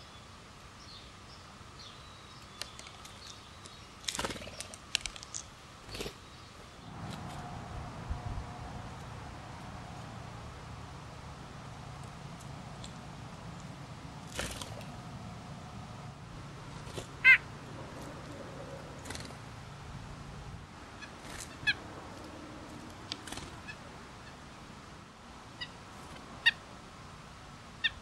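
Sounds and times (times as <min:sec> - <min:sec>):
nuthatch short calls: 0:17.2 - 0:17.4.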